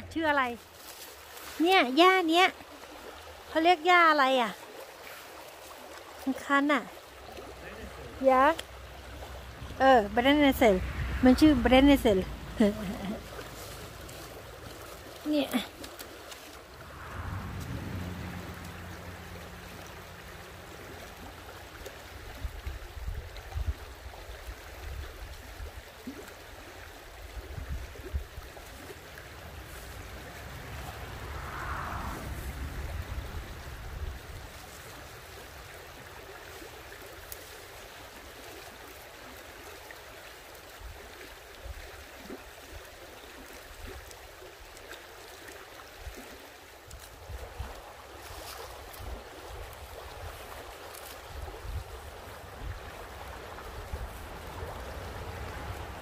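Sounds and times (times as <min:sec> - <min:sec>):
stream flowing: 0:00.0 - 0:56.0
wind on microphone: 0:29.4 - 0:35.1, 0:48.8 - 0:56.0.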